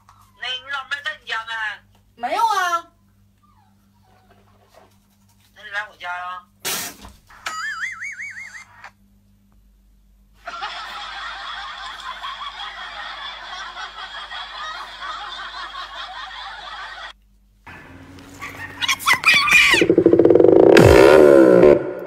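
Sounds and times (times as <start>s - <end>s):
canned laughter: 7.4s - 8.8s, 10.4s - 17.1s, 18.3s - 19.9s
electronic music: 19.6s - 22.0s.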